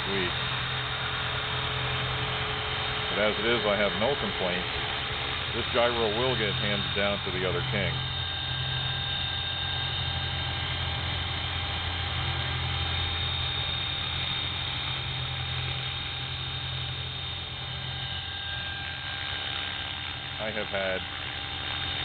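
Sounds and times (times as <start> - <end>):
helicopter rotor drone: 0.0 - 22.0
motor and gears whining: 0.0 - 22.0.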